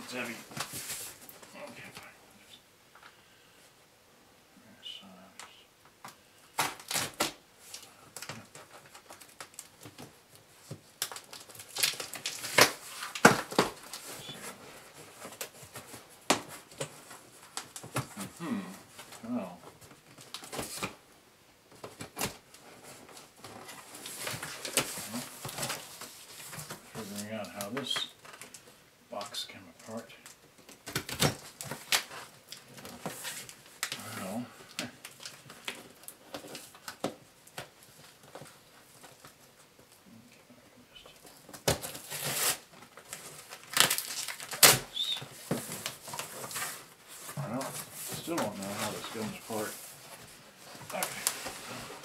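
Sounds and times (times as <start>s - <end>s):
cardboard rustling and scraping: 0.0s - 1.4s, 45.2s - 52.0s.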